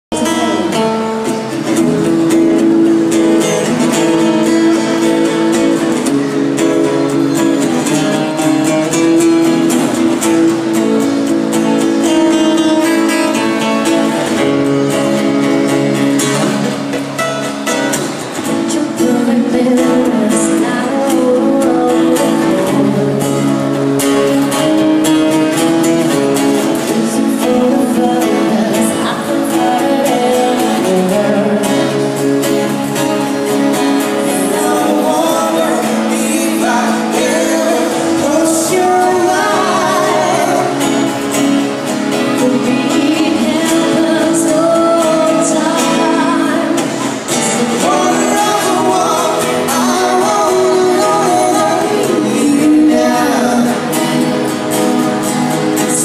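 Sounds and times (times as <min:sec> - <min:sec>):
acoustic guitar strumming: 0:00.1 - 0:56.0.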